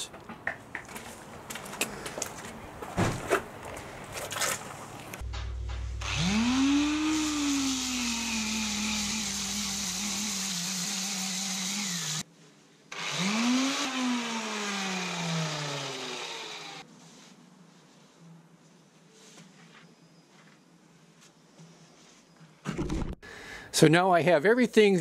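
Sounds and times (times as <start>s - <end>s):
disc sander grinding fiberglass: 6.0s - 12.2s, 13.0s - 16.8s.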